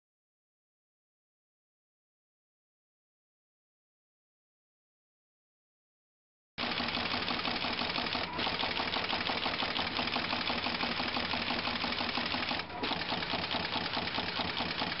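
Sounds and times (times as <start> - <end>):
machine mechanical clatter: 6.6 - 15.0.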